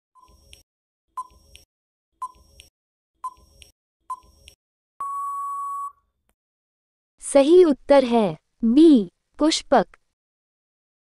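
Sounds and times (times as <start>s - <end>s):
electronic timer ticks: 0.2s - 0.6s, 1.2s - 4.6s
long electronic beep: 5.0s - 6.0s.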